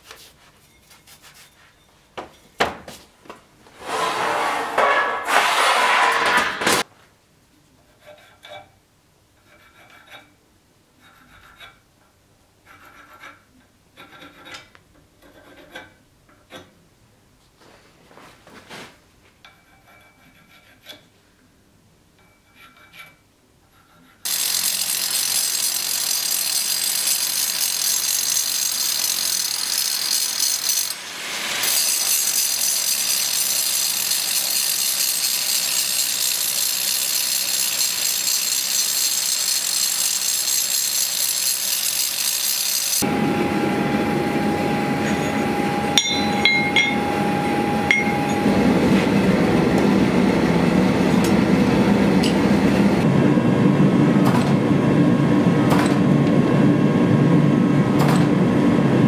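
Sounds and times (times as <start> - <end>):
scratching strokes on steel: 0.2 - 1.9, 3.8 - 6.9, 7.8 - 8.8, 9.4 - 10.4, 11.0 - 11.9, 12.6 - 16.0, 19.5 - 21.2, 22.2 - 26.7, 27.8 - 43.1, 44.6 - 48.6
angle grinder cutting steel: 3.8 - 6.8, 24.2 - 53.0.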